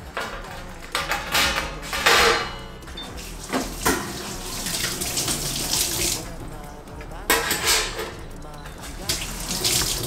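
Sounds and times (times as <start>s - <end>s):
metal tray being scrubbed: 0.0s - 5.8s, 7.3s - 8.1s.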